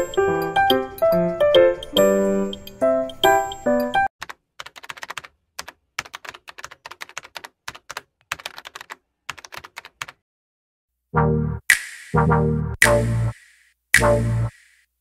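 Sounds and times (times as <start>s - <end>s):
light piano-like music: 0.0s - 4.1s
computer keyboard typing: 3.8s - 10.2s.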